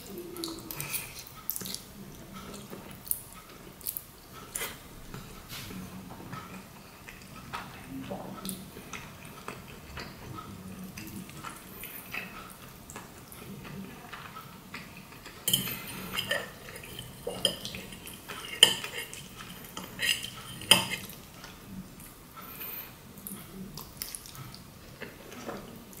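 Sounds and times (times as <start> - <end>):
wet noodle sounds: 0.0 - 22.2
fork clinking on ceramic plate: 15.5 - 21.2.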